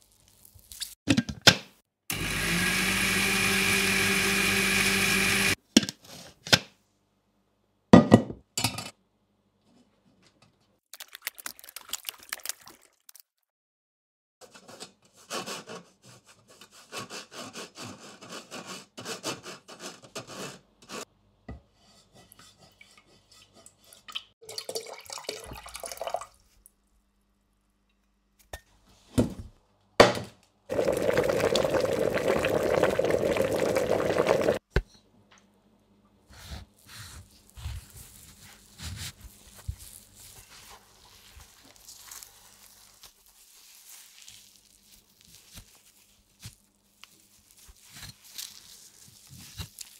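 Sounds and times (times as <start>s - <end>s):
knocks on a pan: 8.0s - 8.4s.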